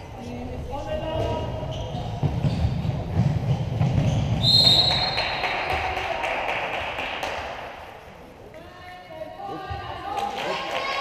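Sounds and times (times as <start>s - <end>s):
referee's whistle blast: 4.4s - 5.3s
sharp claps: 4.5s - 7.8s.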